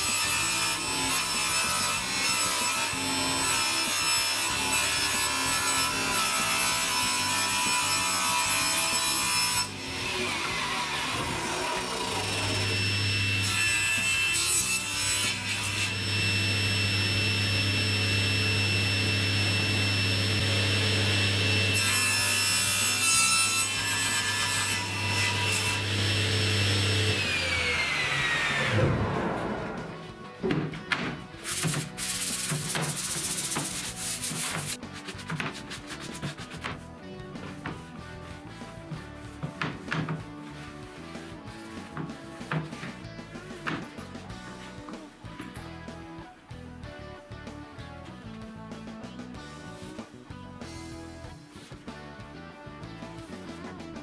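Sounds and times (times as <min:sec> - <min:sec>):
saw cutting laminate board: 0:00.0 - 0:30.2, 0:31.4 - 0:36.8
table saw blade whine: 0:11.3 - 0:14.7, 0:15.3 - 0:30.0.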